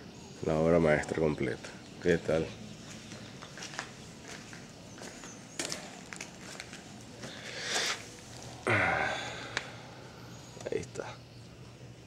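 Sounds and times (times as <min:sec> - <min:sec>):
footsteps on concrete: 0:02.8 - 0:08.5.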